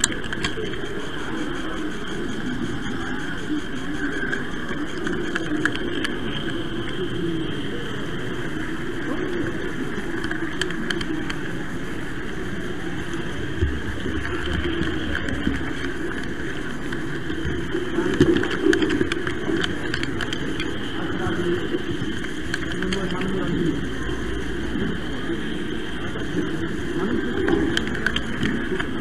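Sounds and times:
small clicks: 0.0s - 7.0s, 9.9s - 11.6s, 13.1s - 21.0s, 27.4s - 29.0s.

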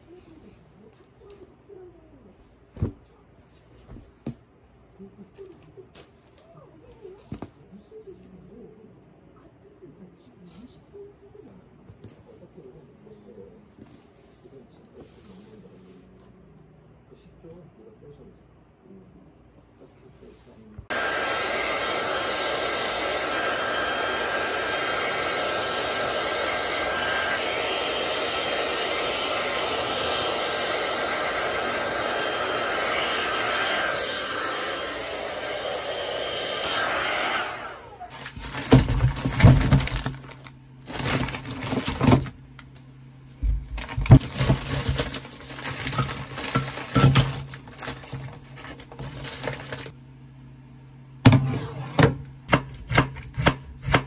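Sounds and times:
hair dryer blowing: 20.9s - 40.0s.

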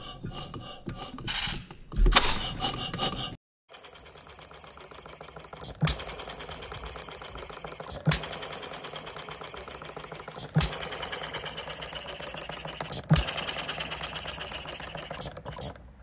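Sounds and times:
fast even mechanical clicking: 3.7s - 15.9s.

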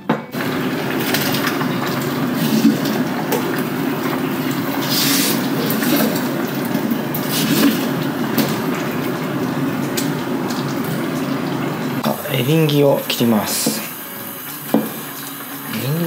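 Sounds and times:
curry bubbling in a pot: 0.4s - 12.2s.

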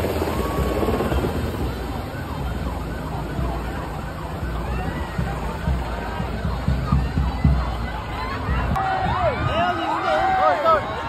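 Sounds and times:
crowd screaming and cheering: 4.2s - 11.0s.

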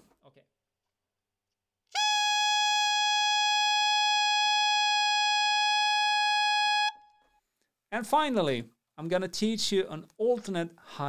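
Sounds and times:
saxophone holding a high note: 1.9s - 7.2s.

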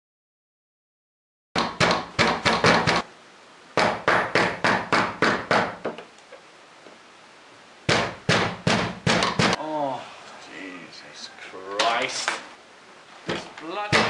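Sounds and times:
knocking on wooden door: 1.6s - 3.0s, 3.8s - 6.0s, 7.9s - 9.6s, 13.3s - 14.0s.

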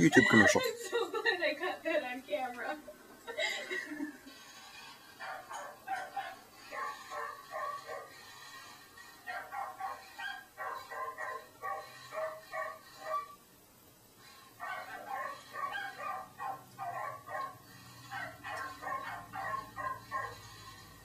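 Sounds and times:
small dog yapping: 14.7s - 20.4s.

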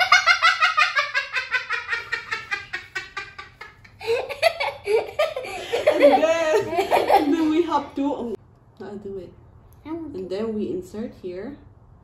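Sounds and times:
young boy laughing: 0.0s - 7.7s.

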